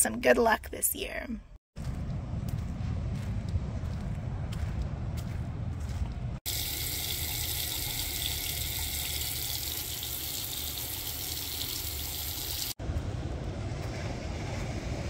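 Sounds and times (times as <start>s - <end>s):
faucet running into sink: 6.5s - 12.8s.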